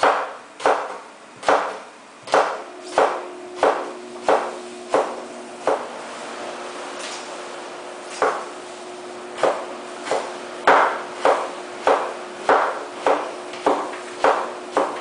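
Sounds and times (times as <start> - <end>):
knife chopping on wooden board: 0.0 - 5.9, 8.1 - 8.5, 9.4 - 15.0.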